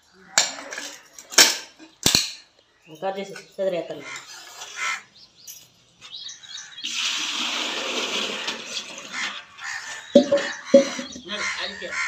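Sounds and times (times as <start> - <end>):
water pouring into metal bucket: 6.8 - 10.4.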